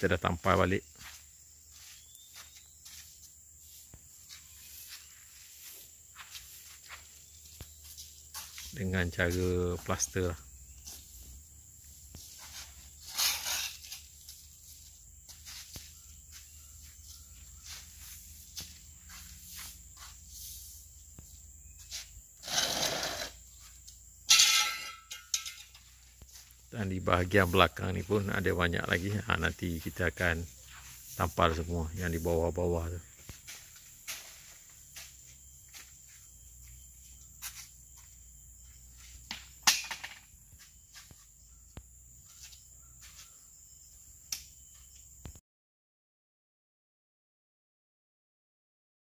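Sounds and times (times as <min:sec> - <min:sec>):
high-pitched insect drone: 0:00.1 - 0:45.3
broom sweeping concrete: 0:01.0 - 0:08.7, 0:10.8 - 0:22.2, 0:29.8 - 0:32.5, 0:33.2 - 0:36.1, 0:37.0 - 0:37.8.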